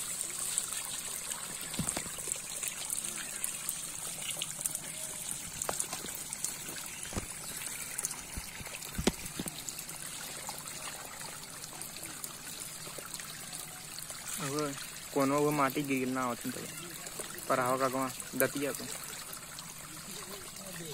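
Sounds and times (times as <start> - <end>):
water trickling: 0.0 - 20.9.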